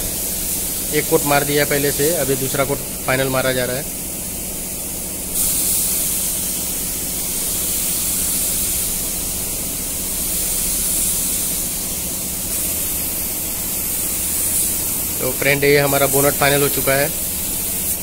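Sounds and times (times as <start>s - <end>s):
spray gun hissing: 0.0s - 18.0s.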